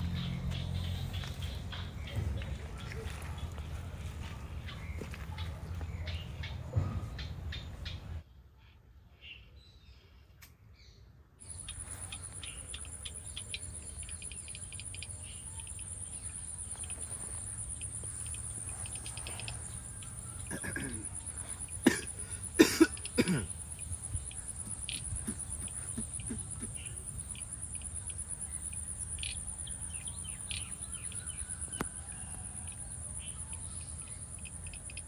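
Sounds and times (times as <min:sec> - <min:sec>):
insect chirring: 0:11.4 - 0:35.0.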